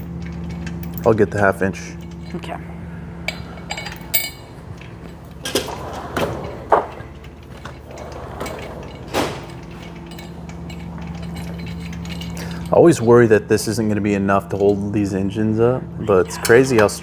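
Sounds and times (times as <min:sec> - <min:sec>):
wrenches clinking: 0:00.0 - 0:02.6, 0:03.2 - 0:15.3, 0:16.0 - 0:17.0
low shop hum: 0:00.0 - 0:17.0
steel drawer opening and shutting: 0:05.4 - 0:10.0.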